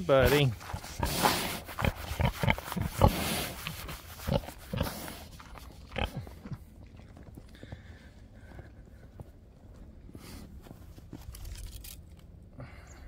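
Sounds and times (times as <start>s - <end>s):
pig grunting: 0.2s - 6.6s.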